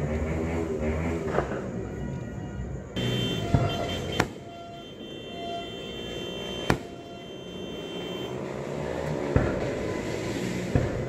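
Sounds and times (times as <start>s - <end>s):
fireworks bangs: 3.0s - 8.2s, 9.2s - 11.0s.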